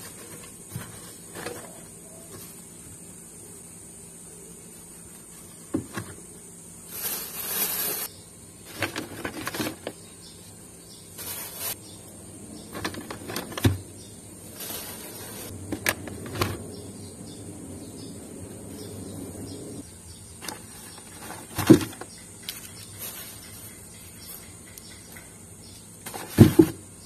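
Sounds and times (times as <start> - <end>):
paper bag rustling: 6.9 - 8.1, 8.7 - 9.9, 11.2 - 11.8, 14.5 - 16.6.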